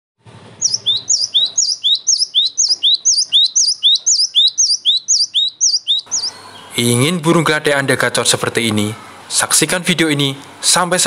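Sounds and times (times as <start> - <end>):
bird whistling song: 0.6 - 6.7.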